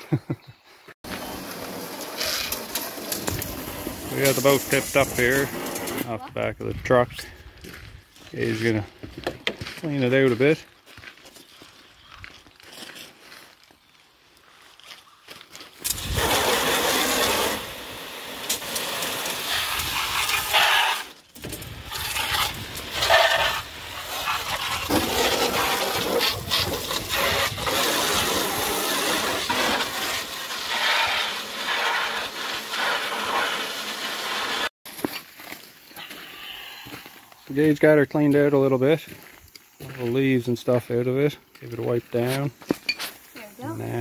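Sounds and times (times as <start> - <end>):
hose spraying into plastic boat: 1.1 - 6.2, 15.8 - 34.7.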